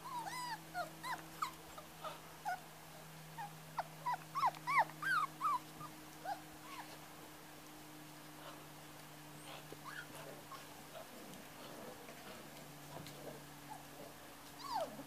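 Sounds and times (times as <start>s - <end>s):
puppies yipping and whining: 0.0s - 2.6s, 3.3s - 7.0s, 9.4s - 11.1s, 13.6s - 15.0s
faint steady hum: 0.0s - 15.0s.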